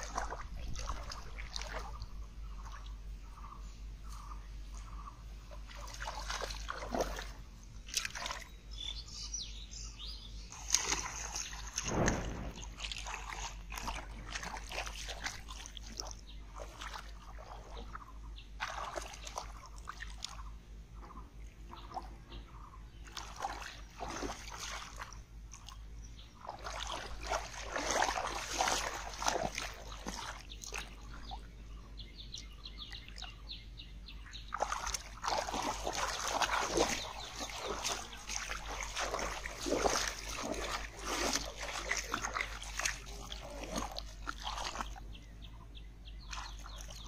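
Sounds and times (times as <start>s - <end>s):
hands splashing in muddy water: 0.0s - 2.0s, 5.6s - 8.5s, 10.5s - 18.0s, 18.6s - 20.4s, 23.0s - 25.8s, 26.4s - 31.3s, 34.5s - 45.1s, 46.2s - 47.0s.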